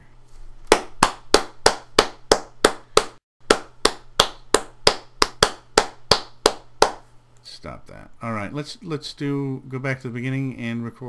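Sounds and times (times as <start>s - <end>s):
person clapping hands: 0.7s - 7.0s.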